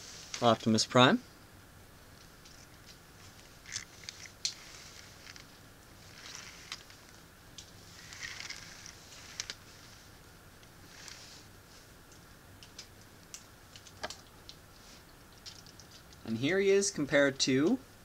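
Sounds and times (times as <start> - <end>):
soft cloth rustles: 0.0 - 0.8, 2.2 - 12.3.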